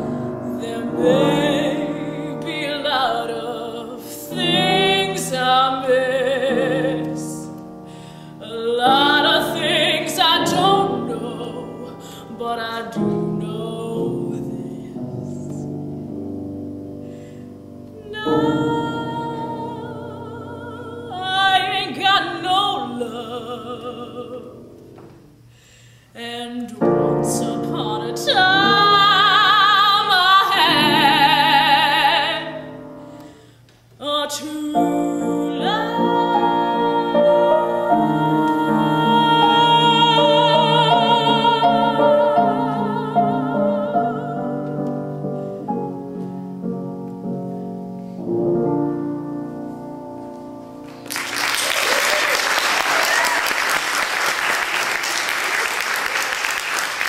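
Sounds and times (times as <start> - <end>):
woman singing classical song: 0.0 - 15.9, 17.8 - 25.2, 26.1 - 46.3
piano accompaniment: 0.0 - 25.5, 26.6 - 57.0.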